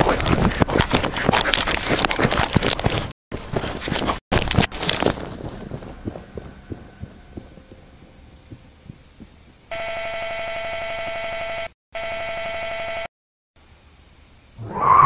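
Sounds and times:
hurried footsteps: 0.0s - 9.7s
soft low thumps: 4.4s - 9.7s.

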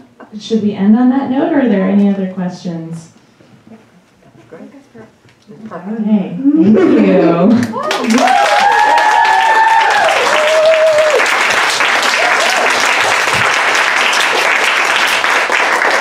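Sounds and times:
voices whooping: 7.6s - 11.3s, 12.1s - 12.8s
audience applauding: 7.6s - 16.0s.

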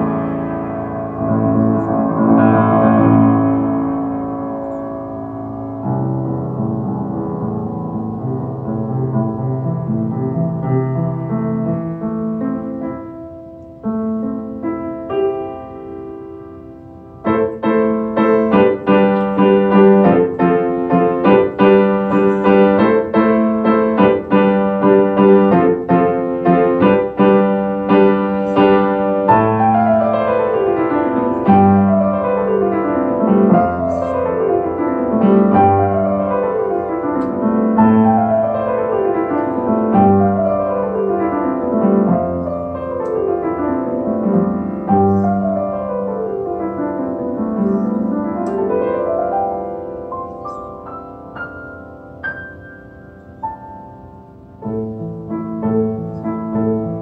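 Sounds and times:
grand piano playing: 0.0s - 57.0s.

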